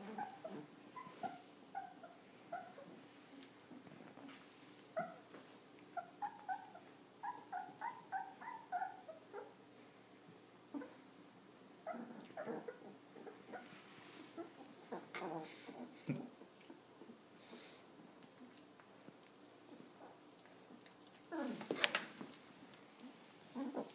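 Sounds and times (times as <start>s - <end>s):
puppies whimpering and squeaking: 0.0s - 3.0s, 5.9s - 9.6s.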